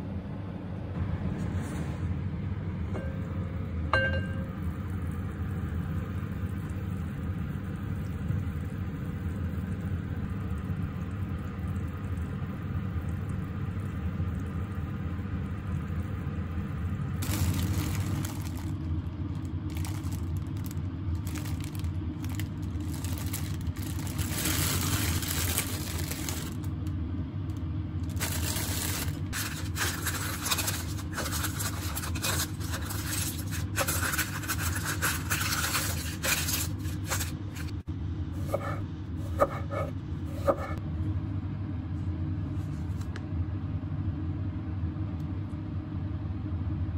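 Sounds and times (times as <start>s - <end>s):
steady low hum: 0.0s - 46.9s
plastic bag rustling: 17.2s - 26.8s, 28.0s - 37.8s.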